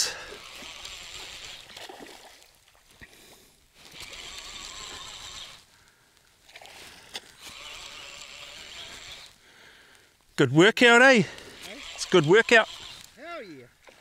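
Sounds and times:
fishing reel whirring: 0:00.0 - 0:02.2, 0:03.8 - 0:05.7, 0:06.5 - 0:09.4, 0:11.4 - 0:13.1.

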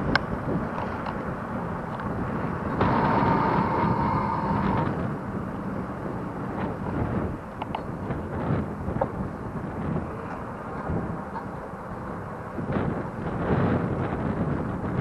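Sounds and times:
bicycle rolling on pavement: 0:00.0 - 0:15.0
wind rushing over microphone: 0:00.0 - 0:15.0
steady whine: 0:01.9 - 0:07.7.

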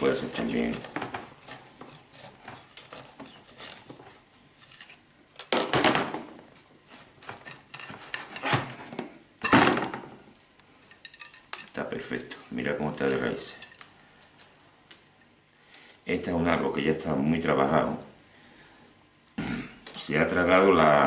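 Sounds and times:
tool scraping a pot: 0:00.0 - 0:05.0.

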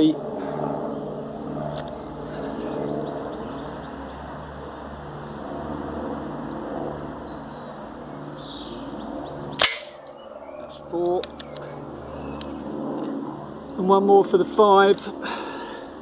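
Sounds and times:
low engine drone pulsing: 0:00.0 - 0:10.6
bird chirps: 0:07.2 - 0:13.8.

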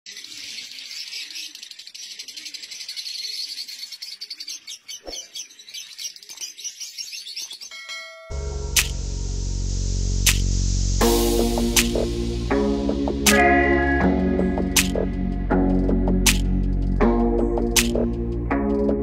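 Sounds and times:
birds chirping and twittering: 0:00.0 - 0:08.3
loud music: 0:08.3 - 0:19.0.

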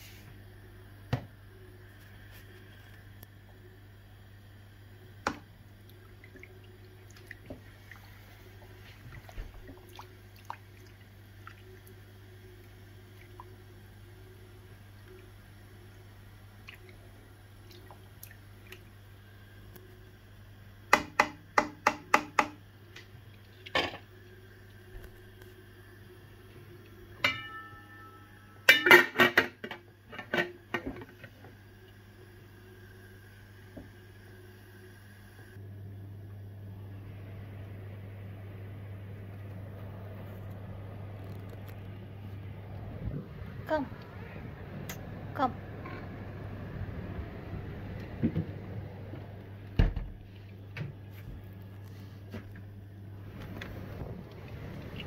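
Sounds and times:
low steady hum: 0:00.0 - 0:55.0
pot simmering with bubble pops: 0:01.0 - 0:28.0
pot lid clanging: 0:27.2 - 0:29.6.

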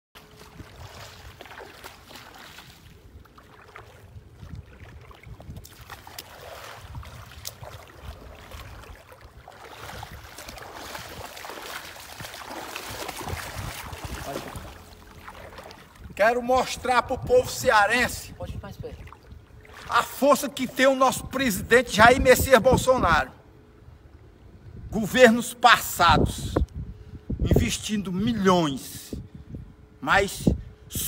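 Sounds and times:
footsteps on wet concrete: 0:00.2 - 0:16.1
wind buffeting microphone: 0:00.3 - 0:20.2, 0:26.1 - 0:27.9, 0:29.1 - 0:31.0.

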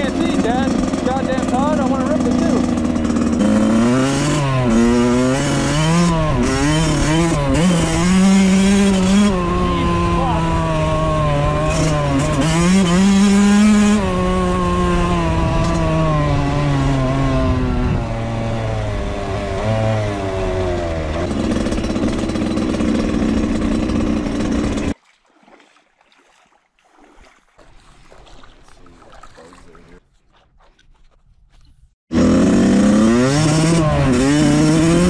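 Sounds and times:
motorcycle engine revving: 0:00.0 - 0:25.0, 0:32.1 - 0:35.0.

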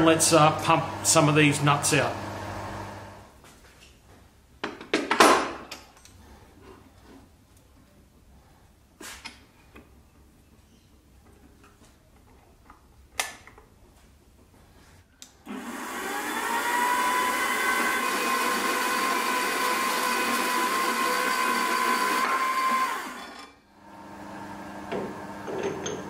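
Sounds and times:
bandsaw cutting steel: 0:15.5 - 0:23.6.

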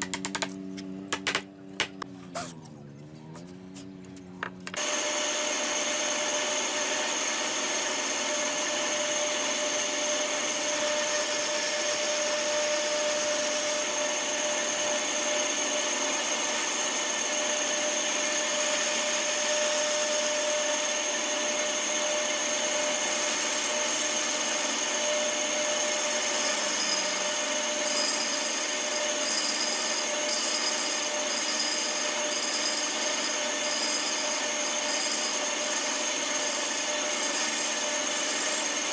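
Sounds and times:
bandsaw cutting wood: 0:00.0 - 0:38.9.

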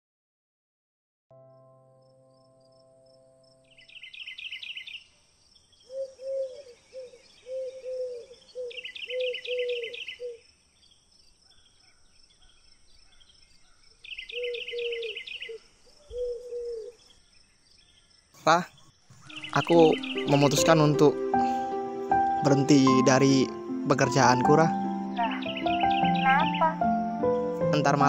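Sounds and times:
faint insect hiss: 0:01.9 - 0:27.9
high rapid bird trill: 0:18.4 - 0:21.7, 0:25.1 - 0:28.0
short arched bird notes: 0:19.1 - 0:22.6.

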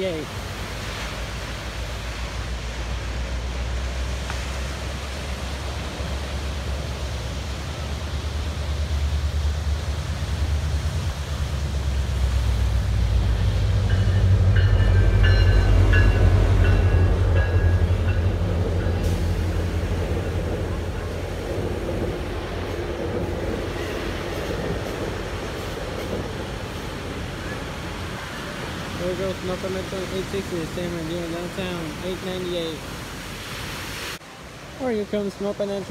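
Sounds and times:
train passing with low rumble: 0:00.0 - 0:33.3.

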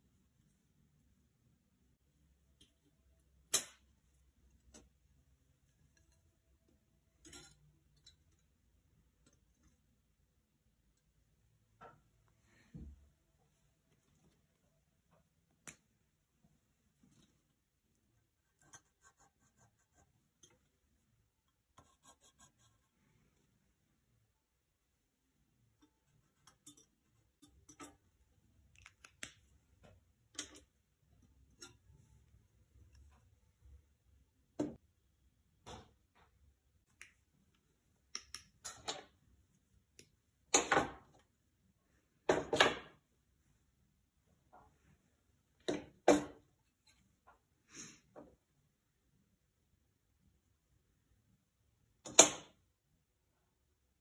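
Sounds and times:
metal tools clicking and knocking: 0:07.2 - 0:08.6, 0:25.8 - 0:28.1
fingers handling metal: 0:25.8 - 0:29.4.

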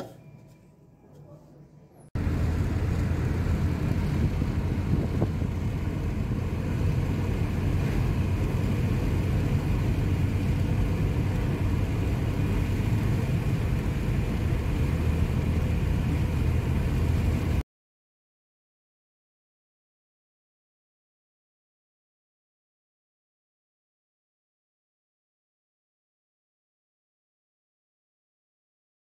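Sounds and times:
car cabin road and engine rumble: 0:00.0 - 0:17.6.

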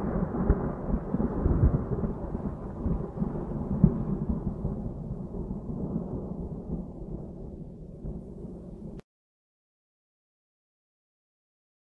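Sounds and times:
deep crackling thunder-like rumble: 0:00.0 - 0:09.0.

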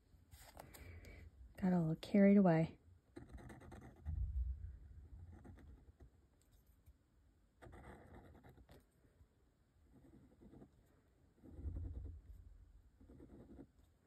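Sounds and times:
pen nib scratching paper: 0:03.1 - 0:04.1, 0:05.1 - 0:06.6, 0:07.6 - 0:08.9, 0:09.9 - 0:12.4, 0:13.0 - 0:14.0.

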